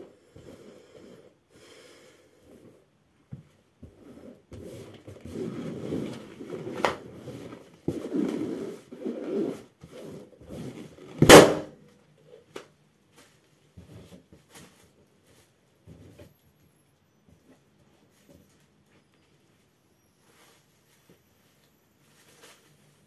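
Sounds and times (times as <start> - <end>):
rubber balloon creaking: 3.9 - 11.4
balloon popping: 11.2 - 11.7.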